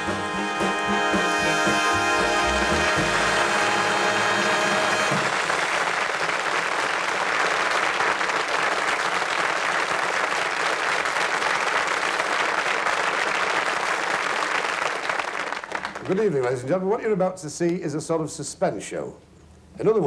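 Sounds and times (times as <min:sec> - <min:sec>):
big band closing chord: 0:00.0 - 0:05.6
audience applauding: 0:00.0 - 0:16.4.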